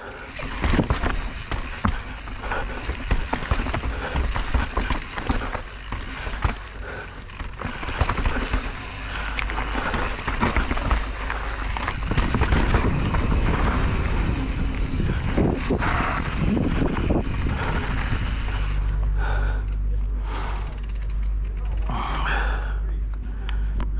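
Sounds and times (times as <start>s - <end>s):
tyres crunching over gravel: 0.0s - 14.9s
bike clattering and rattling: 0.0s - 22.2s
wind rumble on microphone: 11.7s - 19.0s.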